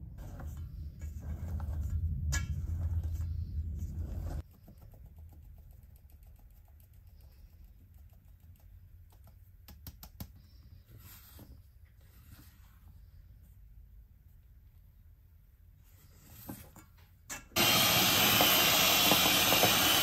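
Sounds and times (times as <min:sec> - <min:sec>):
low rumble: 0:00.0 - 0:04.4.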